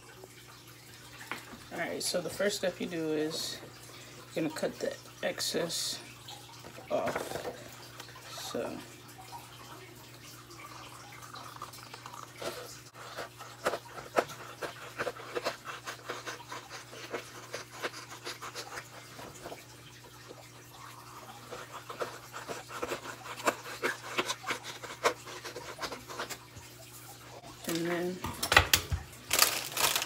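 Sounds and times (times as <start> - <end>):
paper crackles: 29.3 - 30.0.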